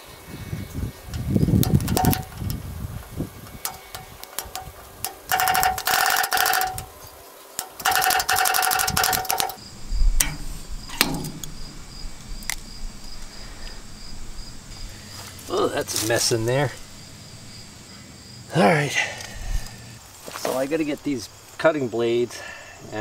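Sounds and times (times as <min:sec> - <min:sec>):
metal clicks: 0:01.1 - 0:02.6, 0:03.4 - 0:07.0, 0:07.6 - 0:17.7
metal pick scraping: 0:01.1 - 0:02.6, 0:03.4 - 0:07.0, 0:07.6 - 0:17.8.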